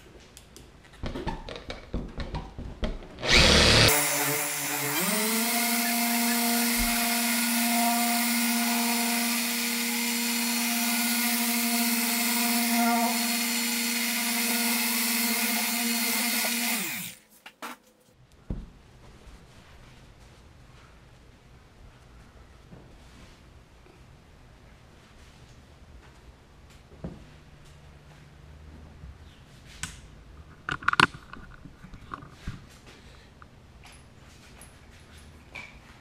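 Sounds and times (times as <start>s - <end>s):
orbital polisher running: 3.2s - 17.2s.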